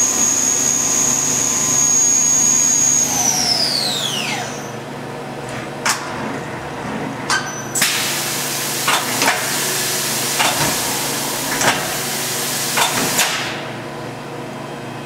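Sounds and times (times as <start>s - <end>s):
machine hum: 0.0s - 7.3s.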